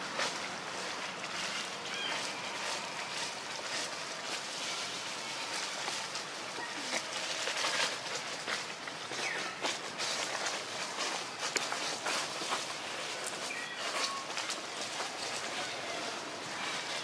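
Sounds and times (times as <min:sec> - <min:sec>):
dry leaves rustling and crackling: 0:00.0 - 0:17.0.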